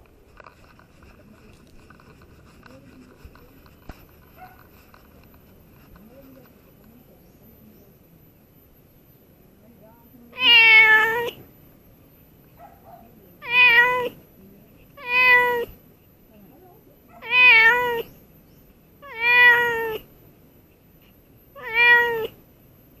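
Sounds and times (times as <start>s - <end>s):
cat meowing: 10.3s - 11.4s, 13.4s - 14.2s, 15.0s - 15.8s, 17.2s - 18.1s, 19.0s - 20.1s, 21.6s - 22.4s.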